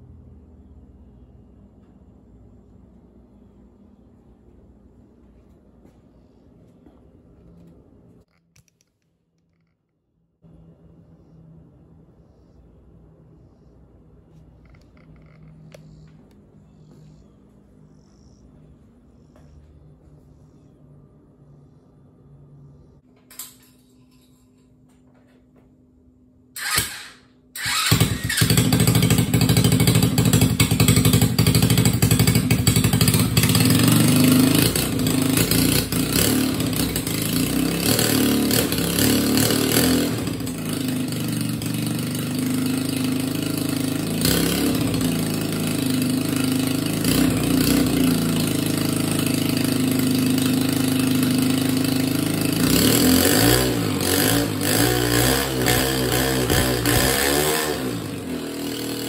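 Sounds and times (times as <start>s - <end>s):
small motorbike engine revving: 26.6s - 59.0s.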